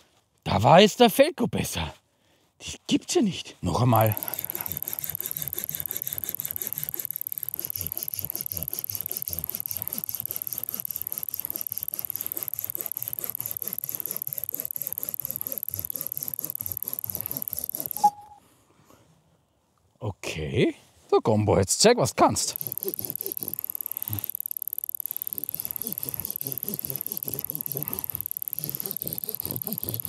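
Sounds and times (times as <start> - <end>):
stopwatch ticking: 3.9 - 18.4, 22.2 - 30.0
short beep: 18.0 - 18.4
steady high tone: 18.0 - 18.4.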